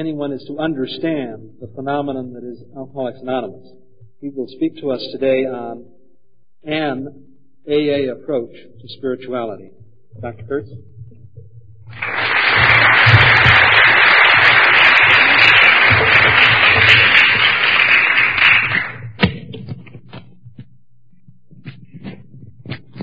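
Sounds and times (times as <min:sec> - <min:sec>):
audience applauding: 0:11.9 - 0:19.2
microphone handling knocks: 0:19.0 - 0:23.0.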